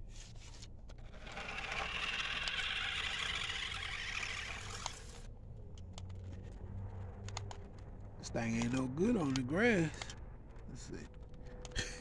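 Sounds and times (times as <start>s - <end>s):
rc car motor whirring: 1.0s - 5.3s.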